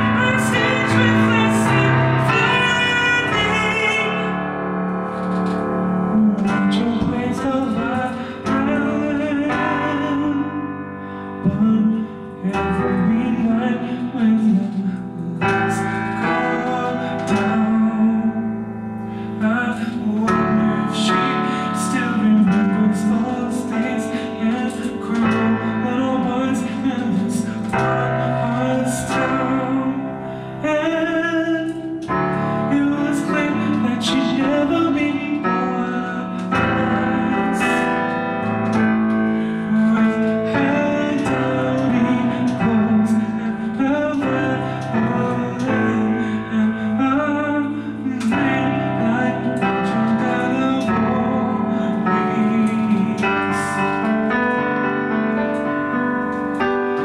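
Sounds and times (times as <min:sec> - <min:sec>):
digital piano chords: 0:00.0 - 0:57.0
person singing: 0:00.0 - 0:57.0.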